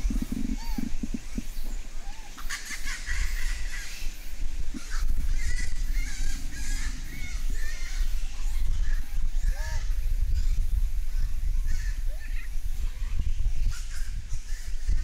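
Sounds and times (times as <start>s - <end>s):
steady low rumble: 0.0s - 2.4s
monkeys calling: 0.0s - 15.0s.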